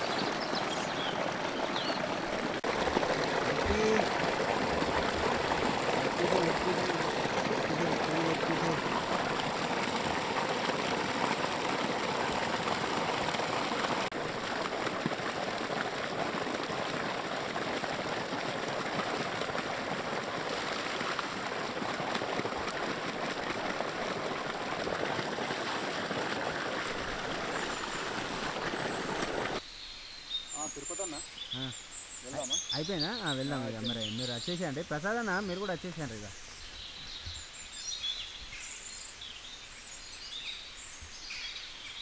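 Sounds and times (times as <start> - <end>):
splashing while rinsing: 0.0 - 29.6
water gushing from pipe: 0.0 - 29.6, 32.3 - 36.2.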